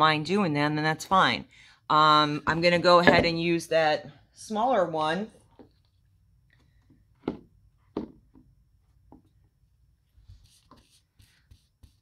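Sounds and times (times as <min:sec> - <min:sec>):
paintbrush stroking wooden board: 0:10.2 - 0:12.0.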